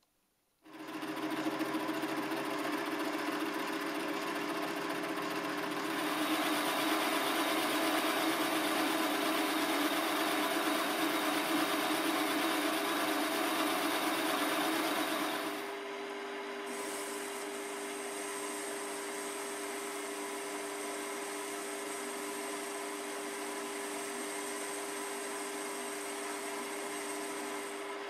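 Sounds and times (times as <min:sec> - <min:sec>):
metal lathe humming: 0:05.7 - 0:15.8, 0:16.7 - 0:28.0
lathe tool cutting metal: 0:05.9 - 0:15.7, 0:16.7 - 0:27.9.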